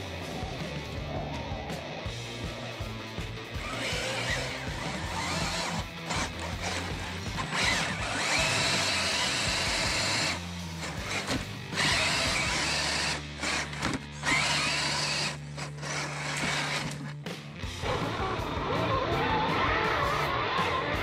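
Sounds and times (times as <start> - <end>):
background music with bass line: 0.0 - 21.0
toy truck motor whining: 3.6 - 17.2.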